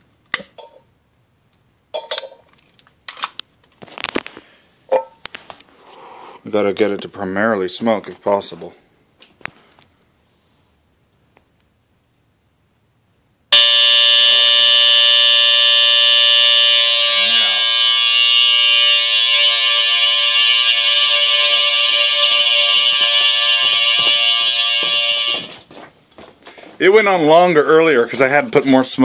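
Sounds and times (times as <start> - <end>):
smoke detector shrill tone: 13.5 - 25.6.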